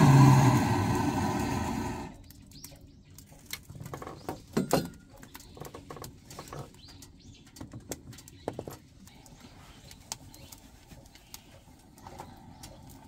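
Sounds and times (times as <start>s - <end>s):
fire crackling in stove: 0.0s - 13.0s.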